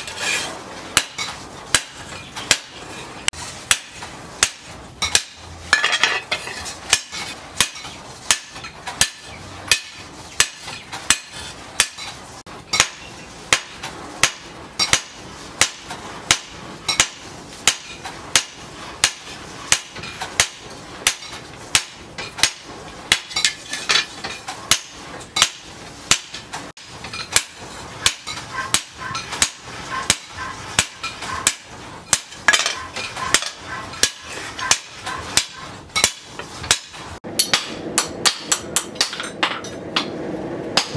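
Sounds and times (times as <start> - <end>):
hammer striking hot steel: 0.0 - 40.9.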